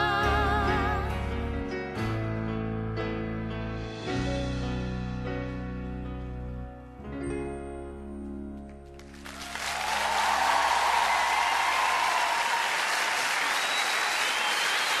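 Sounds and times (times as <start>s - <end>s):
audience applause: 9.0s - 15.0s.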